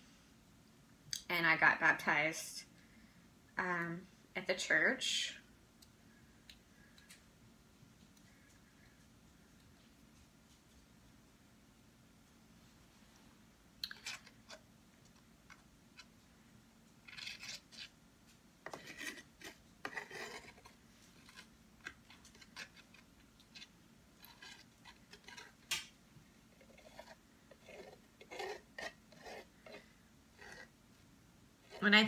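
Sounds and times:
palette knife scraping canvas: 0:17.1 - 0:17.9, 0:18.7 - 0:21.5, 0:26.6 - 0:30.7.

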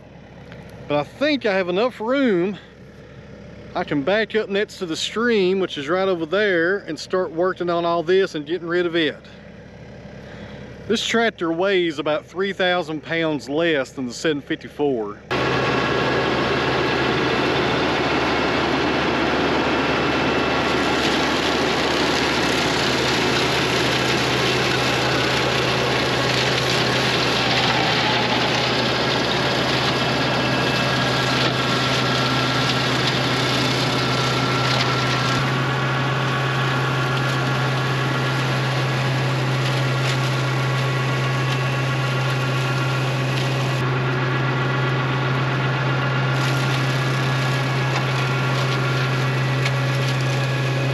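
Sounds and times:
tractor diesel engine running: 0:00.0 - 0:50.9
flail mower whirring through brush: 0:15.3 - 0:50.9.

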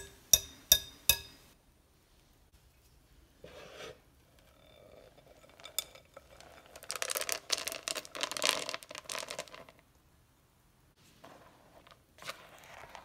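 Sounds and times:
dry mix pouring into glass bowl: 0:04.8 - 0:09.7.

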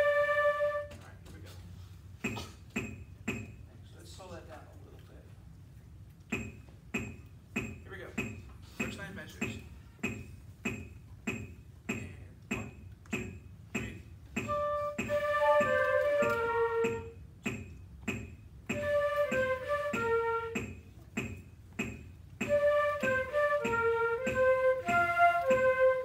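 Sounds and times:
flutes playing melody in unison: 0:00.0 - 0:01.1, 0:14.4 - 0:17.2, 0:18.7 - 0:20.7, 0:22.4 - 0:26.0.

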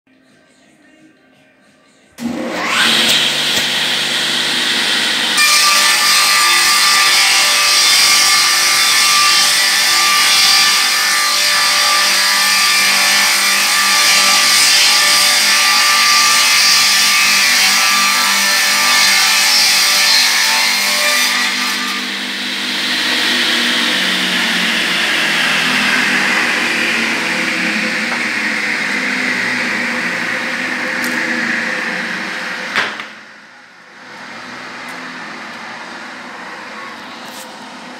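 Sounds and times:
saw ripping wood: 0:02.2 - 0:33.1
circular saw whine: 0:22.0 - 0:37.9.

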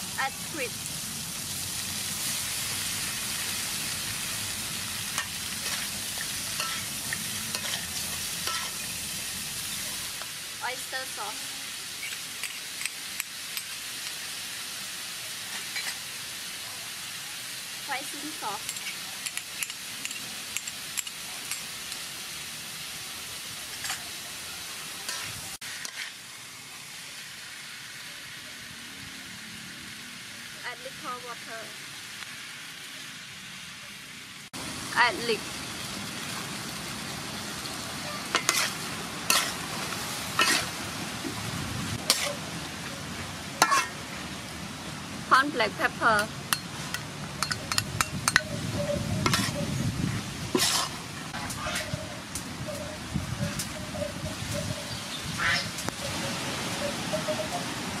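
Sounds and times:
squid sizzling in hot oil: 0:00.0 - 0:58.0
metal spatula scraping a wok: 0:05.0 - 0:10.2, 0:11.9 - 0:14.2, 0:15.5 - 0:16.1, 0:23.7 - 0:24.2, 0:25.0 - 0:26.2, 0:38.0 - 0:40.8, 0:42.0 - 0:42.5, 0:43.6 - 0:44.0, 0:46.5 - 0:55.9.

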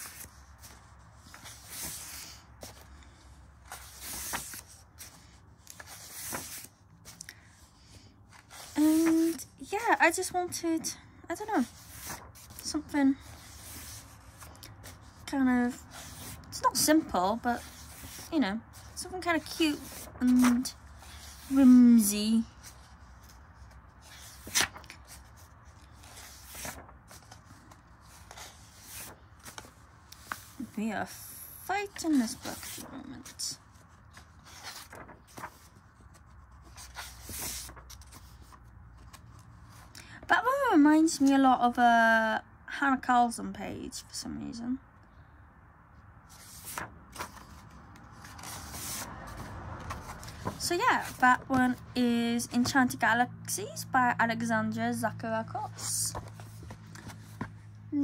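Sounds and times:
book pages turning: 0:00.0 - 0:10.2, 0:11.4 - 0:31.2, 0:31.8 - 0:39.9, 0:46.3 - 0:53.0, 0:55.6 - 0:58.0
book handling taps and rustles: 0:46.4 - 0:53.0, 0:55.7 - 0:58.0.

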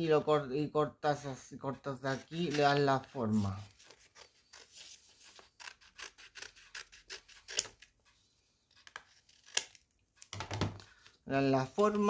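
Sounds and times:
scissors snipping cardstock: 0:05.3 - 0:08.0, 0:08.8 - 0:09.8.

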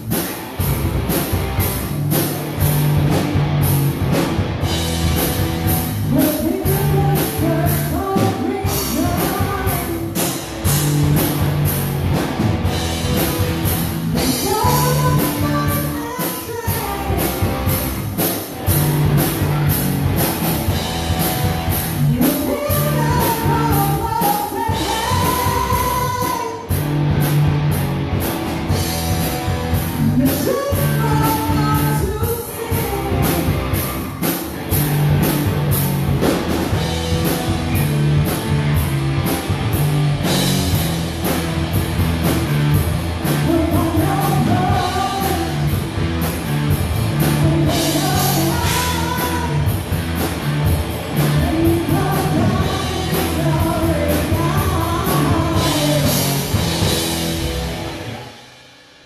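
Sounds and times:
drum kit: 0:00.0 - 0:59.0
electric guitars: 0:00.0 - 0:59.0
rock band playing: 0:00.0 - 0:59.0
woman singing lead vocals: 0:06.0 - 0:10.4, 0:14.1 - 0:17.7, 0:22.0 - 0:26.8, 0:30.0 - 0:33.8, 0:43.4 - 0:45.8, 0:47.2 - 0:49.8, 0:51.3 - 0:56.4.

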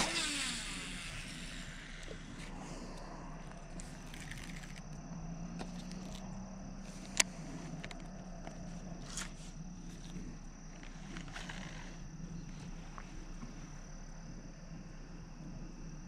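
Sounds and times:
fishing reel clicks: 0:00.0 - 0:02.4
faint high whine: 0:00.0 - 0:16.0
low hum: 0:00.0 - 0:16.0
small ticks and rustles: 0:01.0 - 0:16.0.

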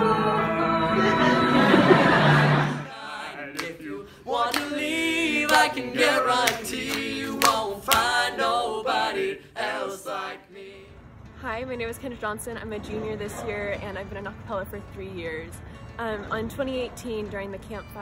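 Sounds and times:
young male voices singing a cappella: 0:00.0 - 0:10.9.

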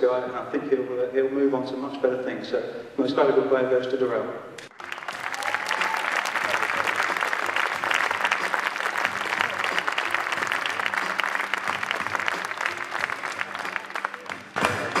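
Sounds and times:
audience clapping: 0:04.6 - 0:15.0.

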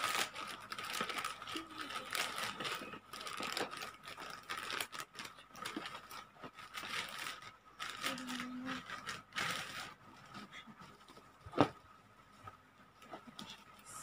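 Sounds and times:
plastic pouch crinkling and ripping: 0:00.0 - 0:10.3.

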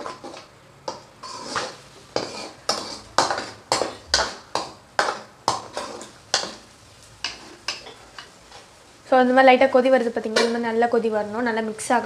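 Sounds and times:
steel spoon scraping a pot: 0:00.0 - 0:04.4, 0:05.0 - 0:06.5.

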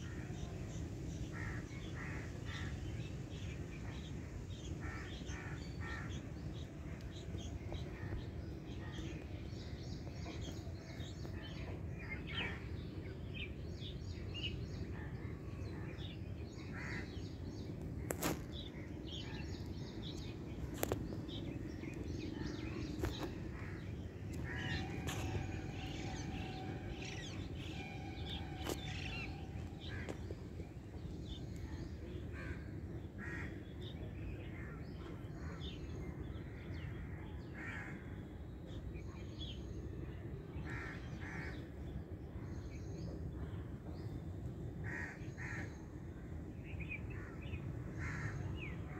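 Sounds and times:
steady low rumble: 0:00.1 - 0:36.3.

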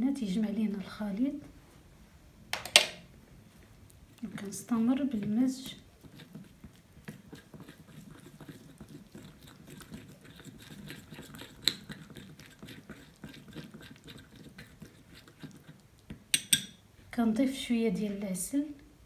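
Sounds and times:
spoon stirring thick paste: 0:04.1 - 0:16.9
spoon knocking bowl: 0:16.3 - 0:16.8.

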